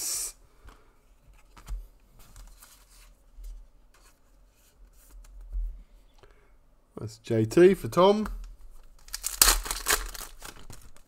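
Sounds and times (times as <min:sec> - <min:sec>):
card rustle: 0:08.8 - 0:11.0.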